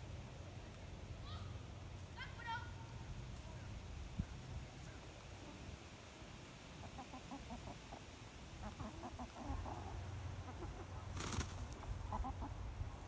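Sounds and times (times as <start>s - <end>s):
hens clucking softly: 4.2s - 13.0s
loud rustle: 11.0s - 12.0s.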